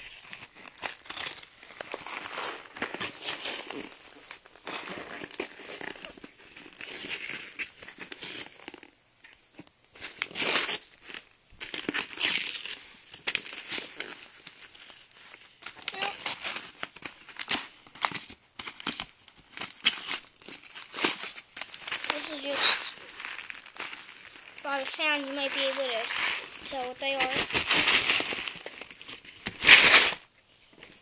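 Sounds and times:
envelope crinkling and rustling: 0:00.0 - 0:31.0
plastic pellets shifting in bag: 0:21.7 - 0:28.8.

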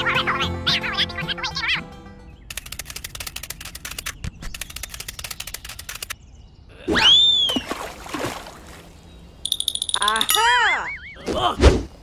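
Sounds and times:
fast run of clicks: 0:02.5 - 0:06.2.

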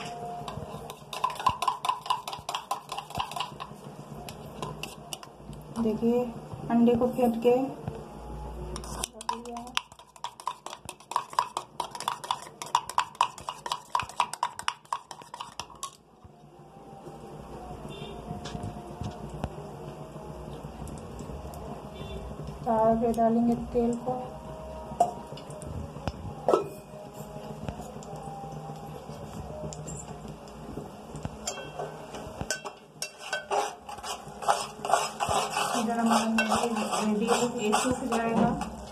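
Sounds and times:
spoon whisking eggs in metal cup: 0:00.0 - 0:05.3, 0:08.7 - 0:16.0, 0:32.4 - 0:38.9.

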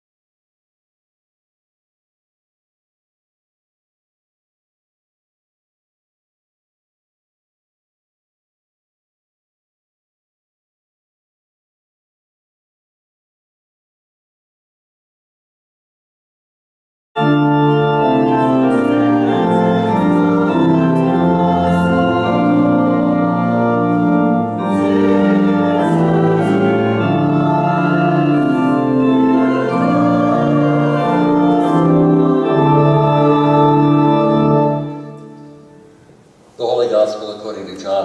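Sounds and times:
church organ chords: 0:17.2 - 0:38.0.

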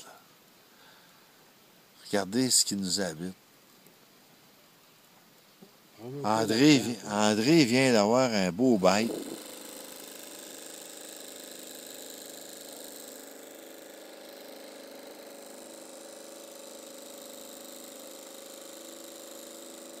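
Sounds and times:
small motor humming: 0:08.6 - 0:20.0.

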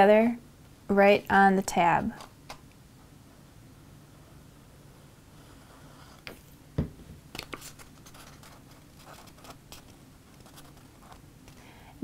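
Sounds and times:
paper rustling: 0:07.4 - 0:11.2.

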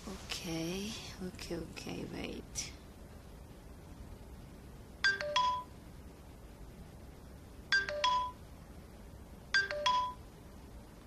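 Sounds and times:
electronic notification chime: 0:09.6 - 0:10.2.

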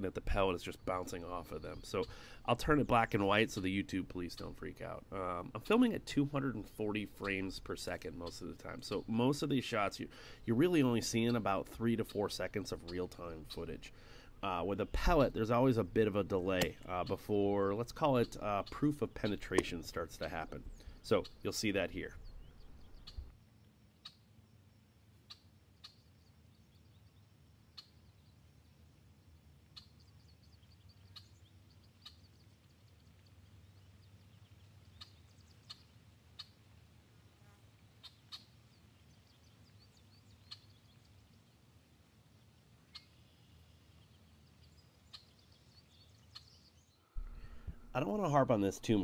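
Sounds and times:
faint low hum: 0:38.6 - 0:49.0.

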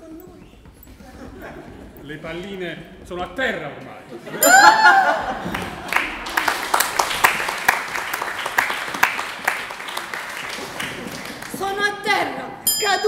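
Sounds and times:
loud high vocal cry: 0:04.4 - 0:05.4
audience applauding: 0:04.7 - 0:11.8.

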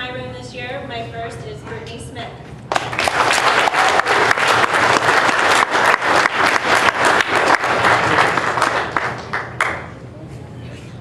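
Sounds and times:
audience applauding: 0:02.7 - 0:10.0.

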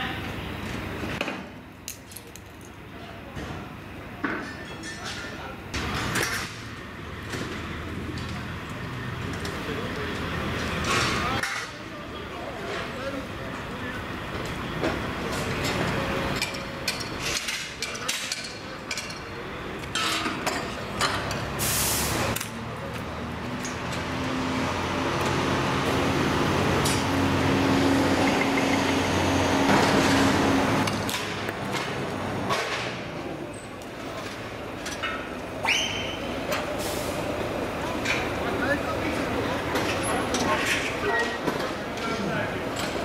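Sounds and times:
engine running: 0:18.8 - 0:35.6.

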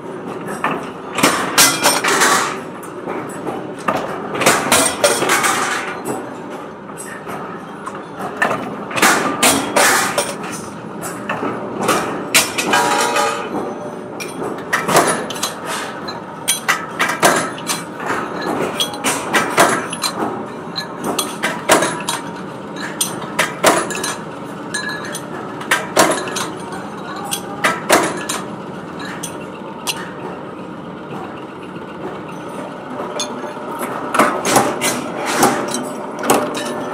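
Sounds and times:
heavy metal clanks of press: 0:00.3 - 0:30.4, 0:32.0 - 0:36.9.

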